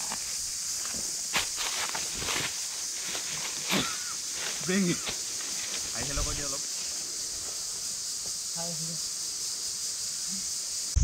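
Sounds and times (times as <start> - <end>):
footsteps on dirt trail: 0.0 - 8.3
steady high hiss: 0.0 - 11.0.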